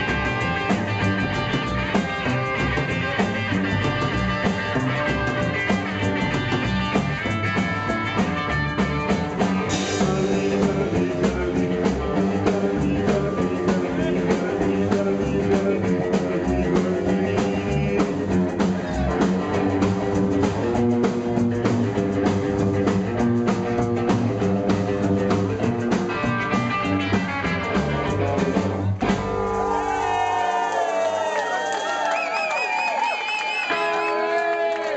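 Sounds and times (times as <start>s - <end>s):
live rockabilly band playing: 0.0s - 30.4s, 33.6s - 34.9s
crowd cheering: 28.9s - 34.9s.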